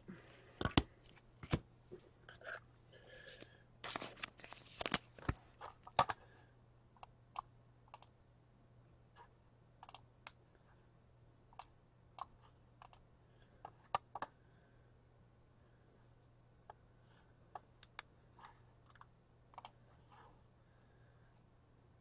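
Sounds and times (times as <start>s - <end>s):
cards rustling and snapping: 3.8s - 6.1s.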